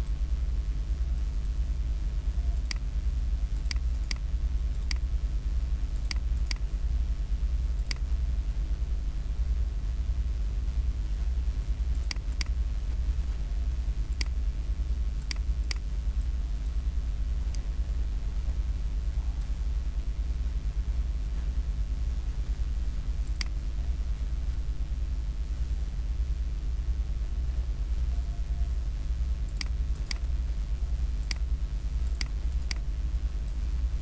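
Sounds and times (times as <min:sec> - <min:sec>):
steady low hum: 0:00.0 - 0:34.0
computer mouse clicking: 0:02.5 - 0:02.9, 0:03.6 - 0:04.2, 0:04.8 - 0:05.1, 0:06.0 - 0:06.6, 0:07.8 - 0:08.1, 0:11.9 - 0:12.6, 0:14.1 - 0:14.4, 0:15.2 - 0:16.8, 0:23.3 - 0:23.6, 0:29.5 - 0:30.4, 0:31.2 - 0:33.6.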